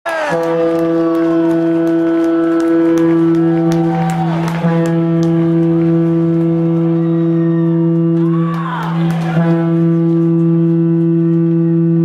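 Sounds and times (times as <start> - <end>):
goal horn blaring: 0.1 - 12.0.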